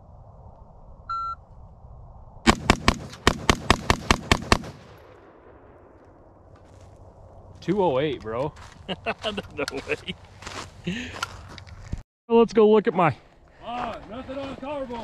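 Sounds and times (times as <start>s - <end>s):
rifle fired rapidly: 2.5s - 5.0s.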